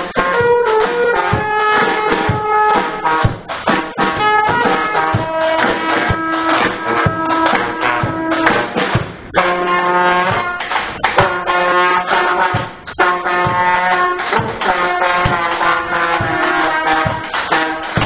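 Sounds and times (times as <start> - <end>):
horns playing held notes: 0.0 - 18.0
steady drum beat: 0.0 - 18.0.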